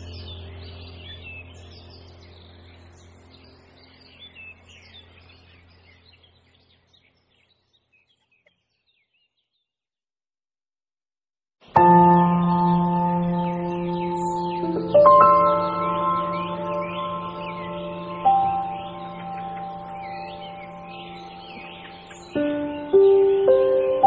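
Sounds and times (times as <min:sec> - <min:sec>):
ambient music ringing tones: 0:00.0 - 0:05.8, 0:11.8 - 0:24.0
background music low drone: 0:00.0 - 0:06.4, 0:11.7 - 0:24.0
birds chirping: 0:00.0 - 0:09.8, 0:11.6 - 0:24.0.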